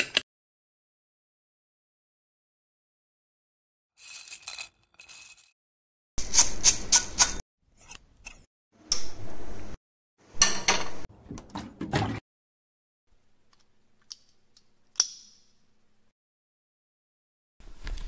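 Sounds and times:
cornflakes poured into metal containers: 4.0 - 5.5.

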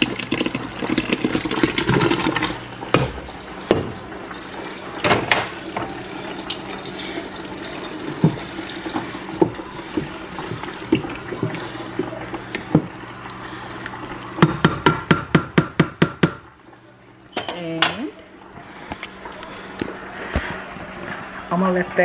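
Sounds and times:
liquid pouring into a pot: 0.0 - 14.4
spoon knocking against a pot: 14.4 - 16.4.

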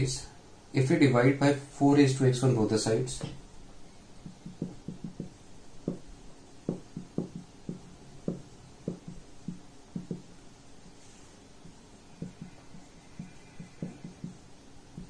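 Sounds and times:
marker writing on whiteboard: 4.2 - 15.0.

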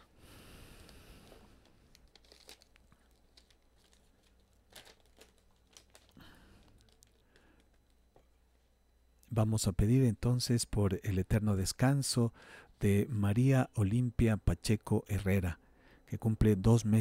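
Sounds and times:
paper rustling and crinkling: 1.2 - 8.0.

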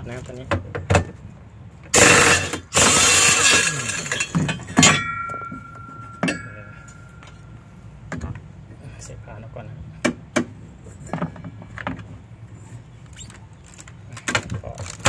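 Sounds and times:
air impact wrench hammering: 1.9 - 6.5
ringing metal clink: 2.0 - 7.6.

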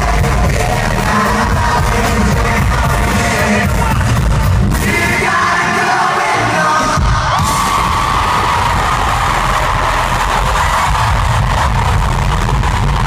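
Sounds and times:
boy band singing into microphones: 0.0 - 10.9
backing track with heavy bass: 0.0 - 13.0.

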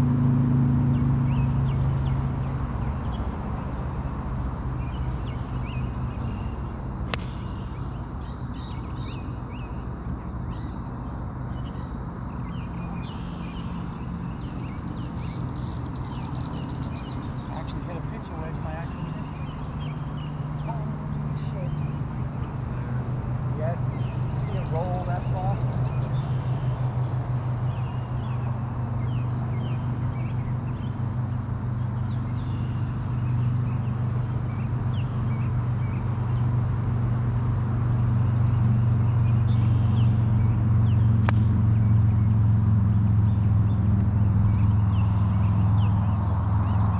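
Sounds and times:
birds chirping: 0.9 - 46.9
golf club striking ball: 7.1 - 7.6, 41.2 - 41.9
low steady rumble: 13.0 - 46.9.

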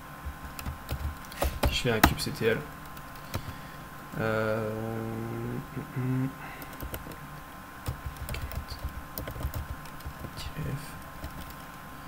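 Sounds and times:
computer keyboard typing: 0.2 - 2.2, 2.8 - 3.6, 6.6 - 7.2, 7.8 - 10.5, 11.2 - 11.7
man's hesitation sound: 4.1 - 7.0.

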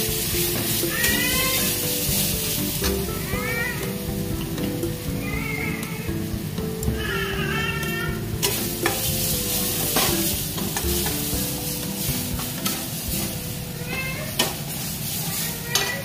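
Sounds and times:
mixture sizzling in a pan: 0.0 - 16.0
spatula scraping and knocking pan: 0.0 - 16.0.

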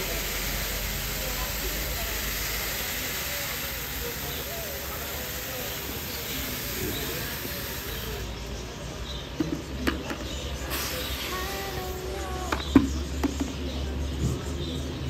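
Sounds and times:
electric fan blowing: 0.0 - 8.3, 10.6 - 12.7.

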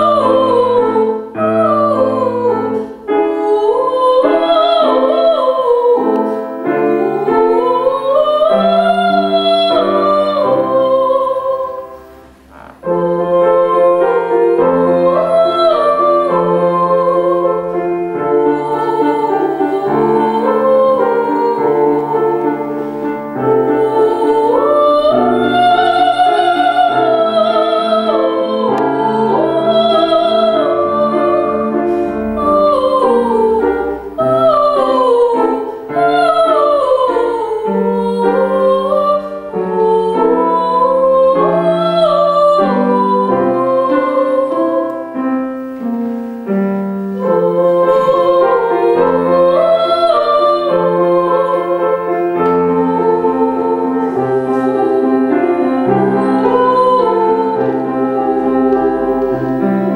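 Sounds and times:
woman singing operatically: 0.0 - 12.0, 12.8 - 45.1, 47.2 - 59.9
piano accompaniment: 0.0 - 59.9.

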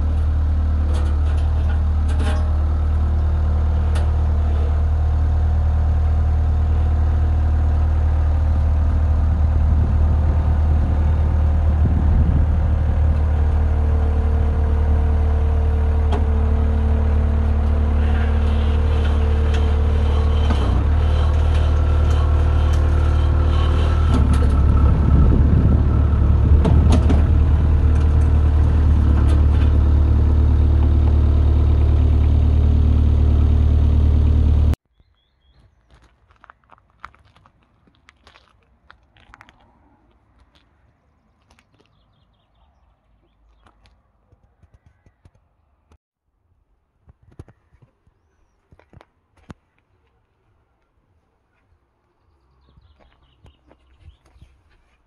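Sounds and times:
diesel engine running: 0.0 - 34.8.

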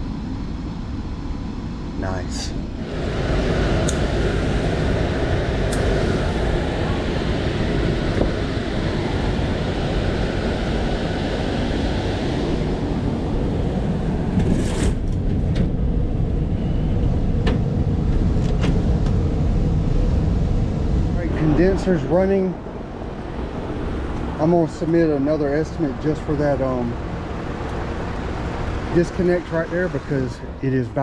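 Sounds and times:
air conditioner running: 0.0 - 31.0.

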